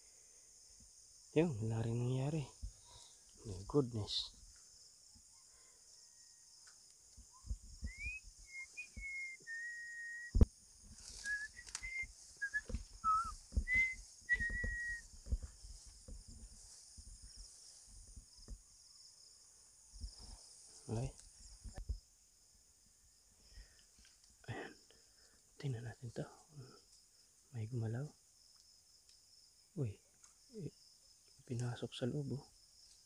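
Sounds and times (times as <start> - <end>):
insects hissing: 0.0 - 33.0
person whistling: 7.8 - 10.4, 11.2 - 15.0
footsteps through grass: 10.8 - 18.3.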